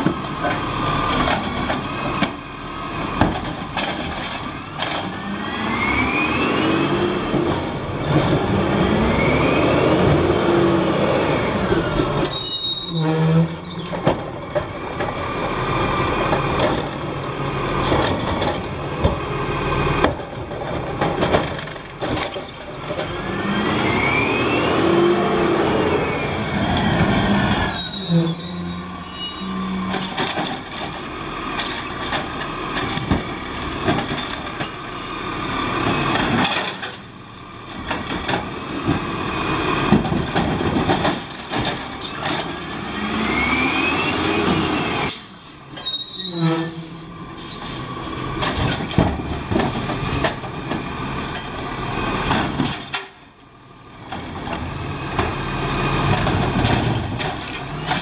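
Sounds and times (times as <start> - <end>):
truck engine revving: 5.1 - 12.2, 22.8 - 27.8, 42.6 - 45.1.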